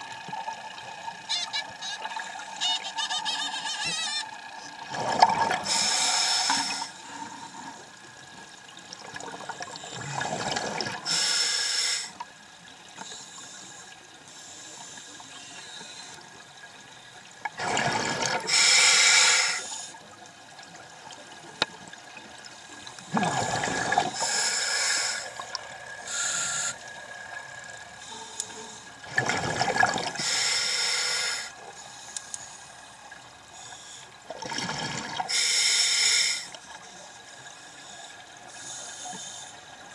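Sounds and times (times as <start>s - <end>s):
faint hiss of water: 0.0s - 39.9s
exhaled bubbles rushing: 4.8s - 5.7s, 9.0s - 11.0s, 17.6s - 18.5s, 23.1s - 24.2s, 29.1s - 30.2s, 34.3s - 35.3s
regulator breath hiss: 5.6s - 7.1s, 11.1s - 12.2s, 18.5s - 20.0s, 24.1s - 25.4s, 26.0s - 26.9s, 30.2s - 32.7s, 35.3s - 36.6s, 37.6s - 39.6s.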